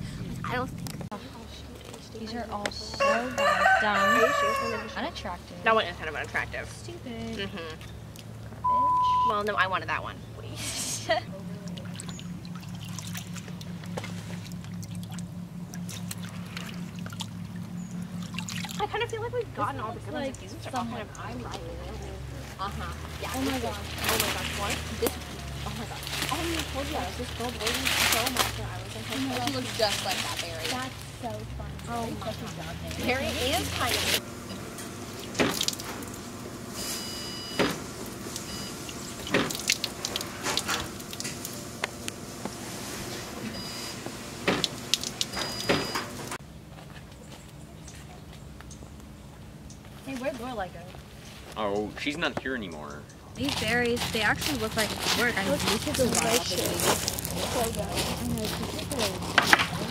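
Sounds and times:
low motor hum: 0.0s - 59.9s
thin high tone: 8.6s - 9.6s
small water splashes: 11.6s - 19.0s, 35.1s - 36.2s, 38.3s - 41.6s
water trickling and dripping: 11.6s - 19.4s, 35.2s - 36.2s, 38.3s - 41.7s, 44.6s - 45.6s.

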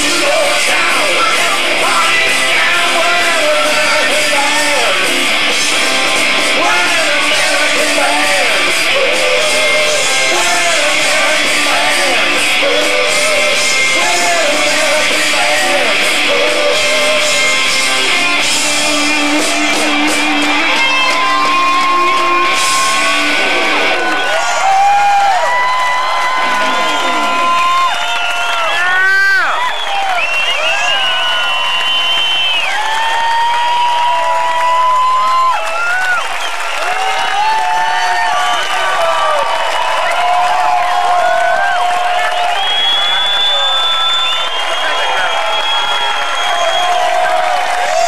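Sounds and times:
person singing: 0.0s - 24.6s
electric guitars: 0.0s - 29.3s
drums: 0.0s - 48.0s.

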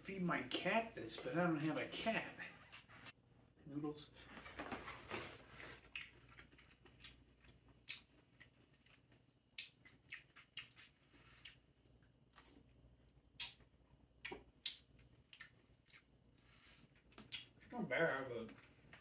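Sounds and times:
chewing with clicks and smacks: 5.6s - 17.7s.

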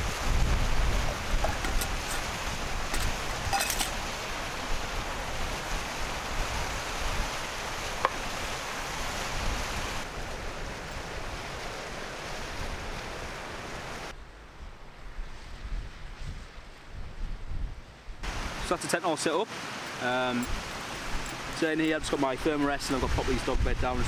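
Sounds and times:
wind buffeting microphone: 0.0s - 8.4s, 14.6s - 18.2s
mountain stream rushing: 0.0s - 14.2s, 18.2s - 24.0s
gear being set down: 1.4s - 2.3s, 2.9s - 4.0s.

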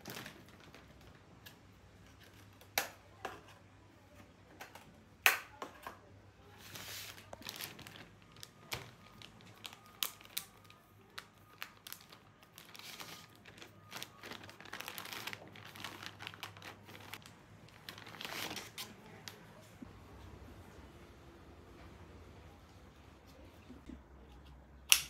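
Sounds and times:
packaging crinkling and rustling: 0.0s - 2.8s, 6.6s - 19.4s.

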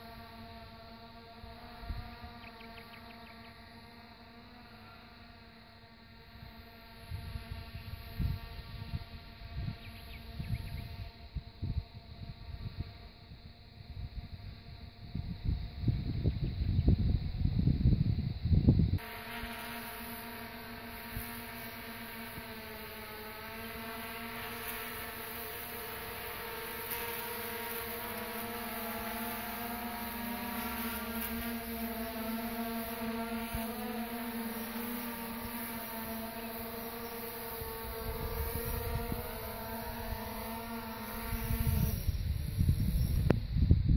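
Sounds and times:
drone propellers humming: 0.0s - 43.9s
wind rumble on microphone: 6.4s - 19.0s, 37.5s - 43.9s.

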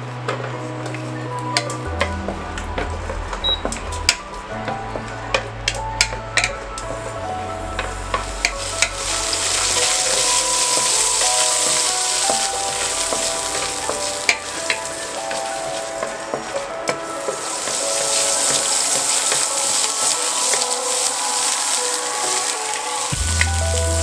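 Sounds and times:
wooden spatula stirring: 0.6s - 23.2s
garlic sizzling in hot oil: 7.8s - 24.0s.

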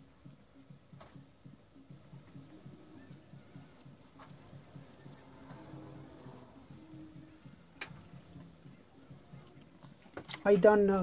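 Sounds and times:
multimeter beeping: 1.9s - 5.5s, 8.0s - 8.4s, 9.0s - 9.6s.

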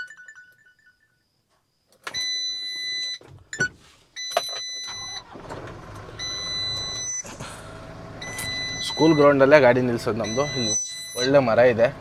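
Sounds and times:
dashboard warning buzzer beeping: 2.1s - 7.3s, 8.2s - 11.8s
diesel engine starting and running: 4.6s - 12.0s.

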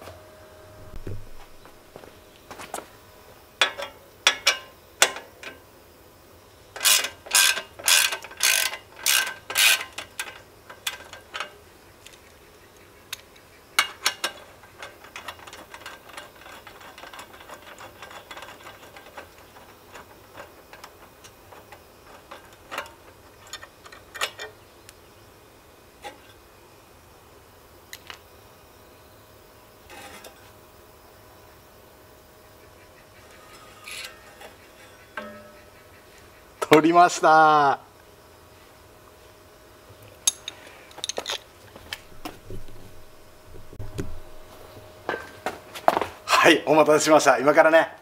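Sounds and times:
hand tool metallic clicks: 40.2s - 42.0s.

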